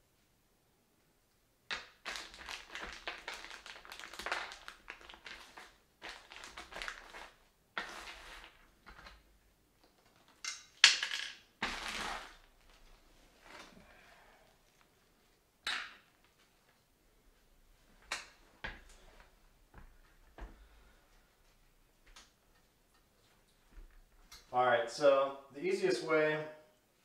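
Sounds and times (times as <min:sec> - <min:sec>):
packaging rustling and crinkling: 0:01.8 - 0:09.2, 0:11.6 - 0:13.7.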